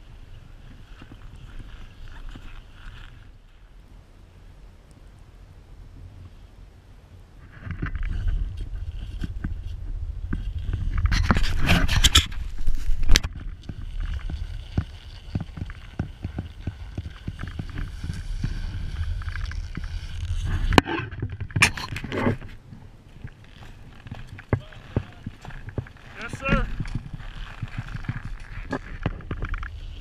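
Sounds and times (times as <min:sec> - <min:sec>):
wind rumbling on microphone: 0:00.0 - 0:30.0
skis scraping over hard snow: 0:07.5 - 0:30.0.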